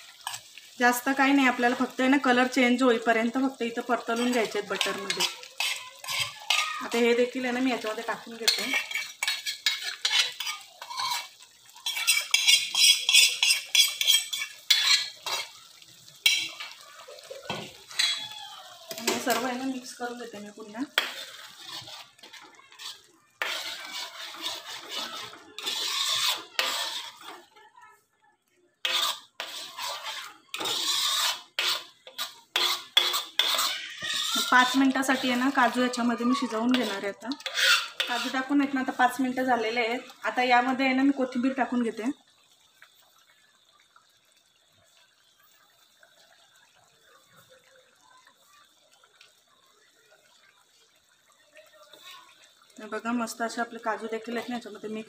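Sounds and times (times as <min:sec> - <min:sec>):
ladle scraping and clinking in pan: 0:00.0 - 0:00.6, 0:04.0 - 0:27.5, 0:28.8 - 0:39.4
curry bubbling and popping: 0:00.0 - 0:55.0.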